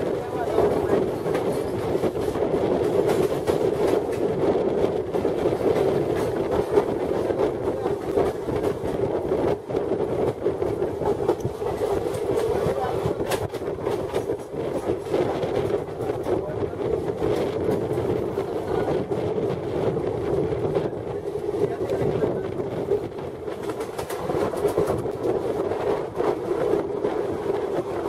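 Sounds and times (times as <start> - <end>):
train running noise: 0.0 - 28.0
wheels clattering over rail joints: 21.2 - 28.0.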